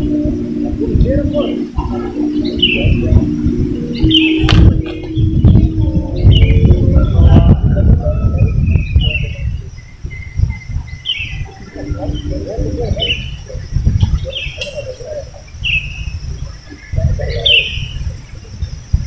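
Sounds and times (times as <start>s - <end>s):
bird chirping: 0.0s - 19.0s
uneven low rumble: 0.0s - 19.0s.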